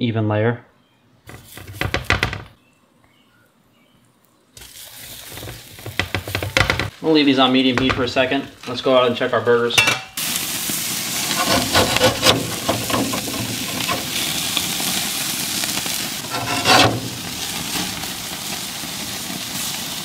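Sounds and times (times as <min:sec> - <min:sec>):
burgers sizzling on a grill: 0:04.6 - 0:20.0.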